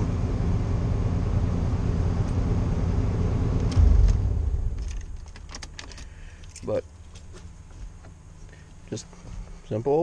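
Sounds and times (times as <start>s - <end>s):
car engine idling: 0.0s - 9.6s
low thump: 3.7s - 5.5s.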